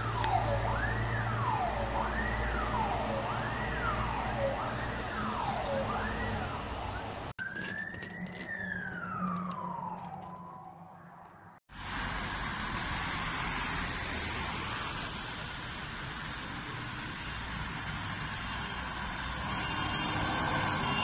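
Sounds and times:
emergency vehicle siren wailing: 0.0s - 11.6s.

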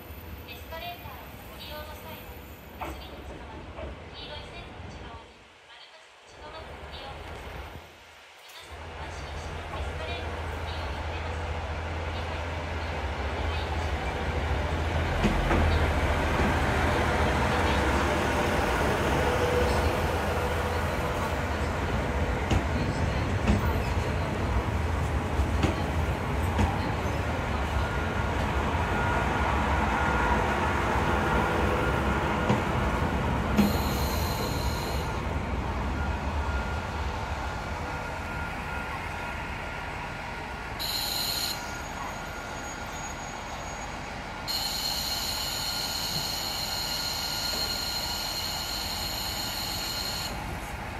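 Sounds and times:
railcar rumbling: 0.0s - 5.7s, 6.4s - 50.9s
brake squeal: 40.8s - 50.4s.

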